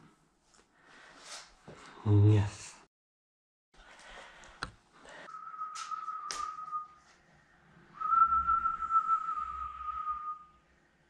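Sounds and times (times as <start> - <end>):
person whistling long notes: 5.3 - 7.1, 8.0 - 10.6.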